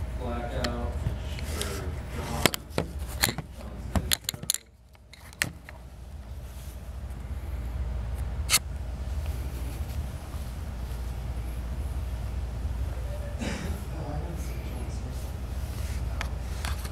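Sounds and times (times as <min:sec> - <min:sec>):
steady low hum: 0:00.0 - 0:16.9.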